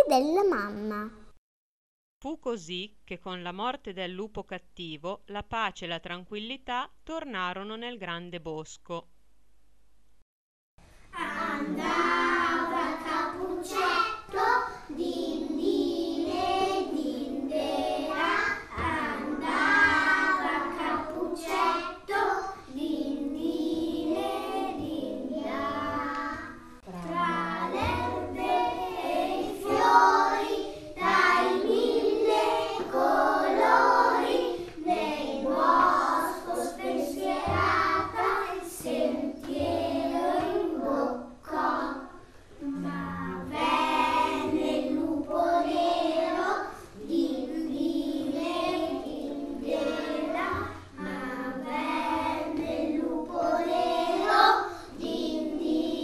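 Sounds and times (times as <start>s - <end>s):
children singing: 11.1s - 56.0s.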